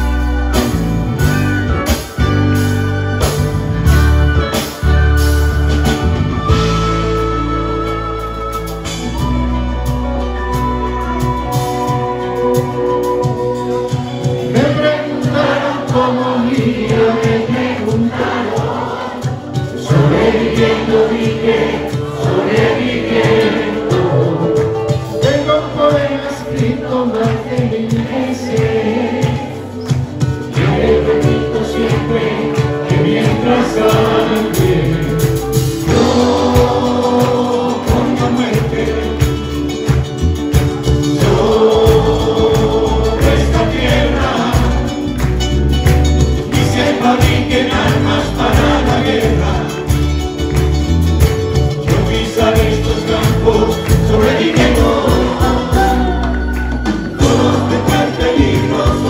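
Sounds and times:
folk band playing guitars and percussion: 0:00.0 - 0:59.0
voices singing together: 0:11.3 - 0:45.4, 0:46.3 - 0:50.6, 0:51.7 - 0:59.0.

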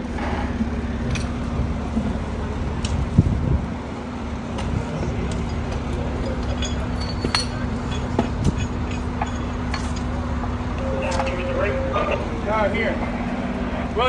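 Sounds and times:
diesel engine idling: 0:00.0 - 0:14.0
light metal clinks: 0:05.3 - 0:10.2.

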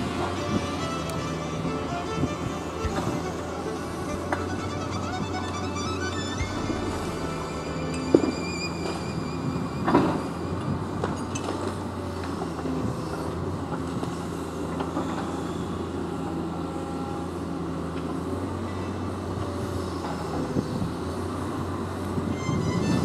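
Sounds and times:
diesel engine under hydraulic load: 0:00.0 - 0:23.0.

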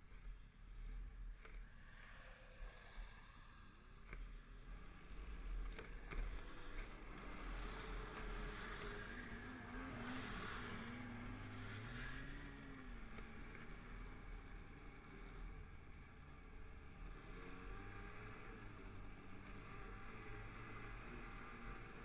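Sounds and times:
snowmobile engines passing: 0:04.8 - 0:22.0.

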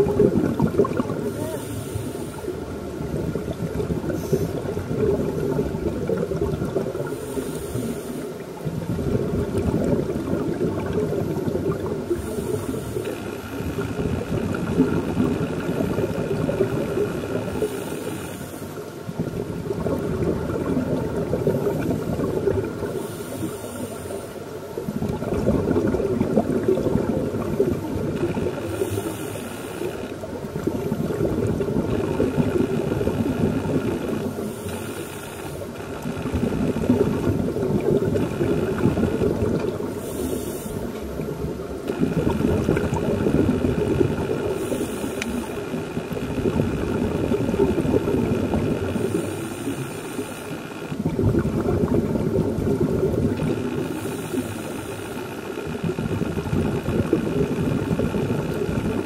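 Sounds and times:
bubbling underwater exhalation: 0:00.0 - 0:01.8, 0:02.8 - 0:07.4, 0:08.6 - 0:17.8, 0:19.1 - 0:23.1, 0:24.7 - 0:29.2, 0:30.2 - 0:34.6, 0:35.7 - 0:40.2, 0:41.1 - 0:50.2, 0:50.9 - 0:59.0
regulator hissing inhale: 0:01.2 - 0:02.7, 0:04.1 - 0:04.7, 0:07.0 - 0:08.5, 0:12.1 - 0:13.8, 0:17.1 - 0:18.9, 0:22.7 - 0:24.5, 0:28.6 - 0:30.3, 0:34.2 - 0:35.8, 0:39.8 - 0:41.2, 0:44.4 - 0:46.2, 0:48.9 - 0:51.0, 0:53.6 - 0:55.8.

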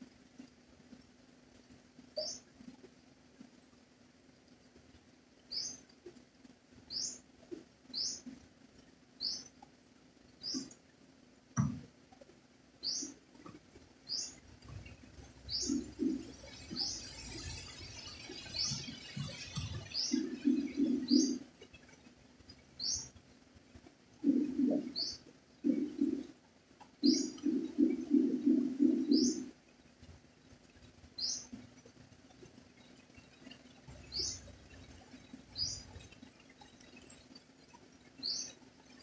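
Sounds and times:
small bird chirping: 0:02.2 - 0:02.6, 0:05.5 - 0:06.0, 0:06.9 - 0:07.2, 0:07.9 - 0:08.4, 0:09.2 - 0:09.6, 0:10.4 - 0:10.8, 0:12.8 - 0:13.2, 0:14.0 - 0:23.2, 0:24.2 - 0:26.3, 0:27.0 - 0:29.6, 0:30.7 - 0:39.0
dove cooing: 0:15.6 - 0:17.0, 0:19.0 - 0:21.4, 0:24.2 - 0:26.3, 0:27.0 - 0:29.5.

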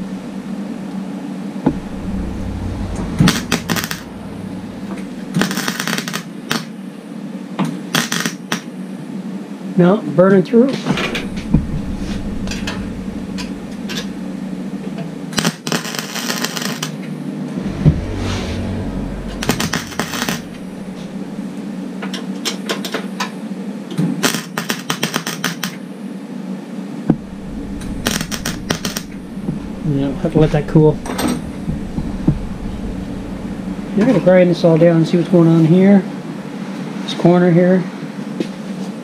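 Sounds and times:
steady hum: 0:00.0 - 0:07.2, 0:10.8 - 0:22.8, 0:26.8 - 0:38.3
welder arc crackling: 0:01.7 - 0:04.1, 0:27.1 - 0:34.6.

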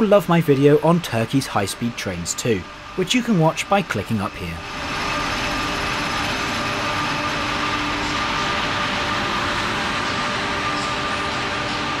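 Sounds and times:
electric locomotive humming: 0:00.0 - 0:12.0.

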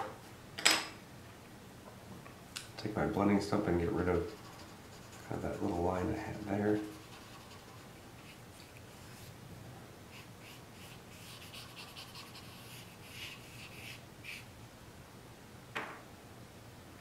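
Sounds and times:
charcoal scratching on paper: 0:03.8 - 0:09.4, 0:10.1 - 0:14.5.

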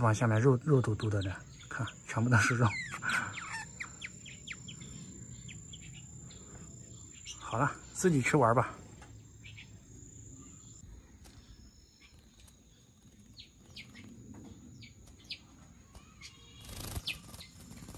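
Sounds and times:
faint bird chirps: 0:00.0 - 0:17.9
bird shaking feathers: 0:16.6 - 0:17.9.

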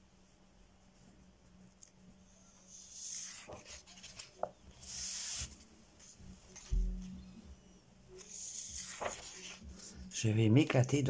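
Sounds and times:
page turning swish: 0:02.9 - 0:05.6, 0:08.2 - 0:09.6.

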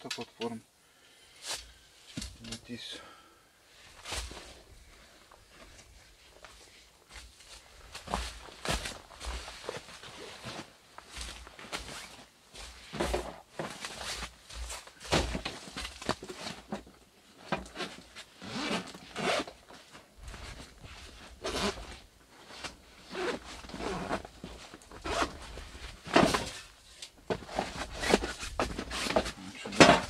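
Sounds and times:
fabric rustling: 0:03.7 - 0:30.0
zipper being pulled open: 0:17.7 - 0:19.5, 0:21.4 - 0:22.0, 0:23.0 - 0:24.3, 0:25.0 - 0:25.5.

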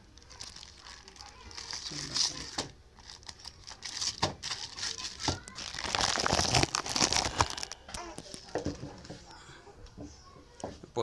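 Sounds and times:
plastic pouch crinkling and tearing: 0:00.2 - 0:08.4.

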